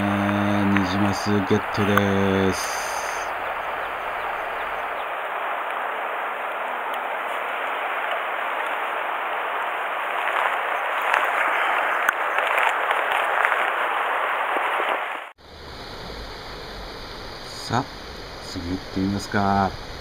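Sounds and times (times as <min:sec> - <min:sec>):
river water rushing over gravel: 0:00.0 - 0:15.3.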